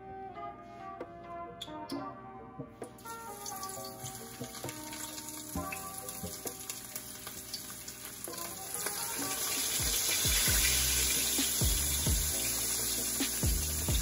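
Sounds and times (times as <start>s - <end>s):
fish sizzling in hot oil: 3.1s - 14.0s.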